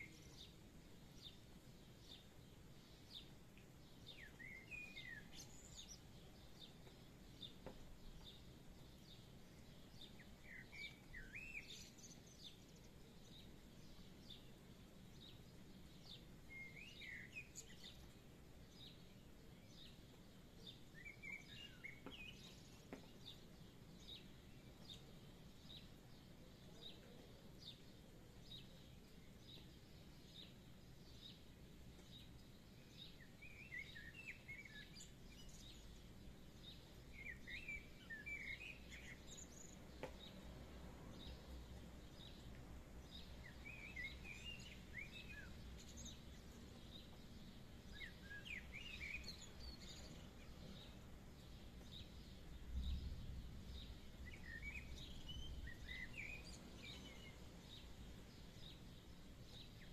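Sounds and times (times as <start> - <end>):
bird chirping: 0.0 - 59.9
birds twittering: 2.0 - 59.9
faint low rumble: 50.8 - 58.8.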